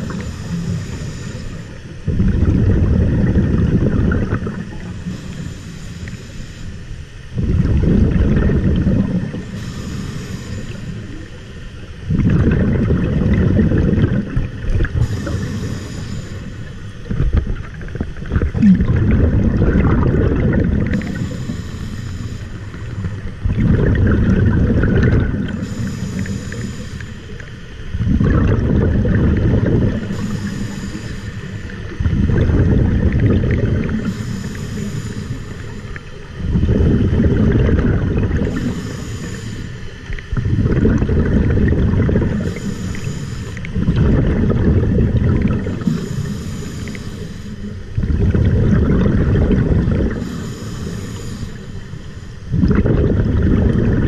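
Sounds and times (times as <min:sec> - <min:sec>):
regulator inhale hiss: 0:00.0 - 0:02.1, 0:04.7 - 0:07.4, 0:09.3 - 0:12.0, 0:14.3 - 0:17.3, 0:20.8 - 0:23.4, 0:25.4 - 0:28.0, 0:29.8 - 0:32.0, 0:33.8 - 0:36.4, 0:38.4 - 0:40.4, 0:42.3 - 0:43.8, 0:45.5 - 0:48.0, 0:50.0 - 0:52.5
exhaled bubbles rushing: 0:00.0 - 0:05.4, 0:07.3 - 0:09.7, 0:12.0 - 0:26.7, 0:27.3 - 0:34.2, 0:35.5 - 0:38.8, 0:40.0 - 0:47.0, 0:47.6 - 0:50.3, 0:52.4 - 0:54.0.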